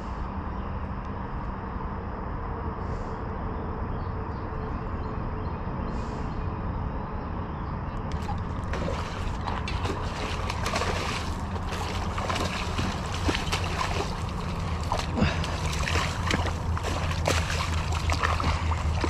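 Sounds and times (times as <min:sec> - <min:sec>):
steady low rumble: 0:00.0 - 0:19.0
fish splashing at water surface: 0:08.1 - 0:19.0.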